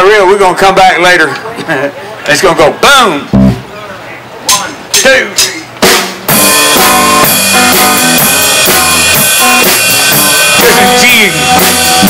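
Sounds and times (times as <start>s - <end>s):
electric bass: 3.2s - 3.7s, 6.3s - 12.0s
drum kit beat: 3.3s - 3.7s, 4.5s - 12.0s
electric guitars: 3.3s - 3.7s, 6.3s - 12.0s
person counting in: 10.6s - 11.6s.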